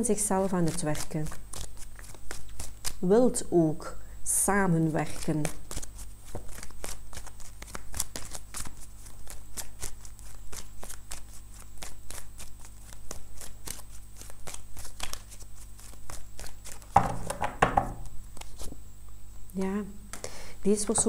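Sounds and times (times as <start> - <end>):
cards being shuffled: 0.4 - 3.1, 5.0 - 18.8.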